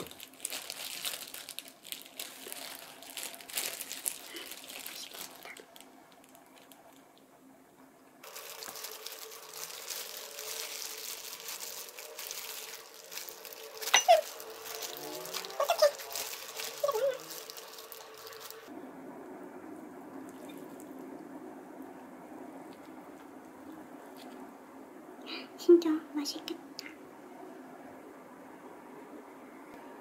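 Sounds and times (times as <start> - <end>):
chicken skin crackling: 0.0 - 7.0, 8.2 - 18.7
plastic gloves crinkling: 0.0 - 7.2, 8.2 - 18.7
short squeaky sounds: 13.8 - 14.9.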